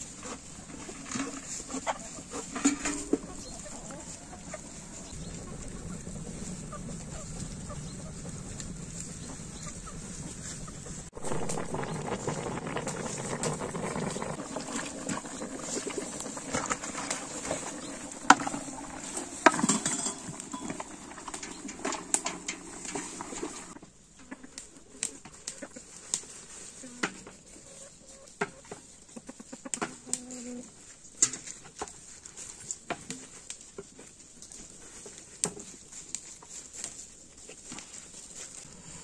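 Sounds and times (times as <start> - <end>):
chickens clucking: 0.2 - 30.7
dishes and cutlery clinking: 19.5 - 23.6.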